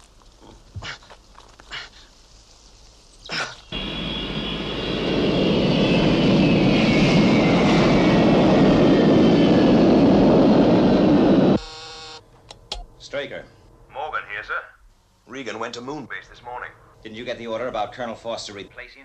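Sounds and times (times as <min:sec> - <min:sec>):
jet engine running with whine: 0:03.7 - 0:13.4.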